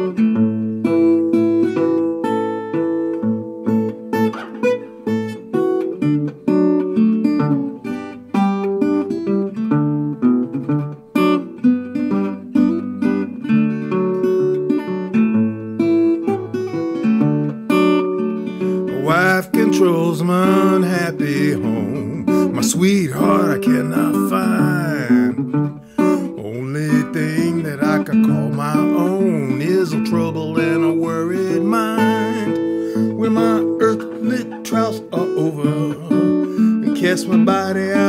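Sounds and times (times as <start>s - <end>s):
resonator guitar blues: 0.0s - 38.0s
person singing: 18.7s - 38.0s.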